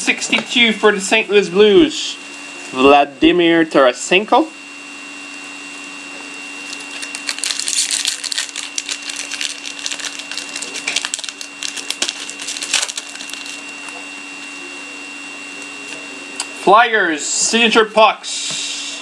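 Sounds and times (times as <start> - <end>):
faint high whine: 0.0 - 19.0
low electrical hum: 0.0 - 19.0
card wrapper crinkling: 6.6 - 14.0.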